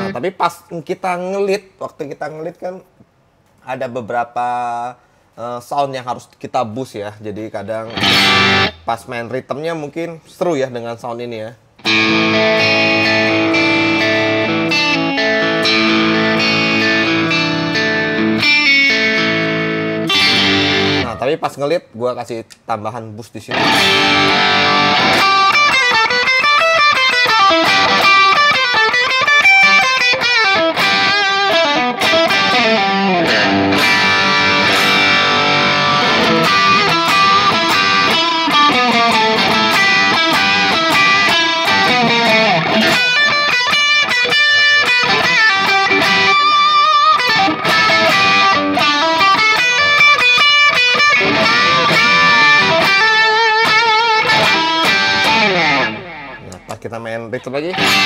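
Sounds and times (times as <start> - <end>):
electric guitar lead with bends: 7.9 - 8.9, 11.8 - 21.2, 23.5 - 56.7, 57.7 - 58.0.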